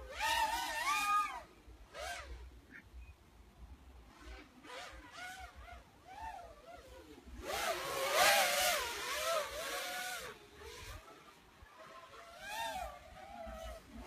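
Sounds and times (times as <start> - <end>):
quadcopter motors whining: 0.0 - 3.1, 4.1 - 14.0.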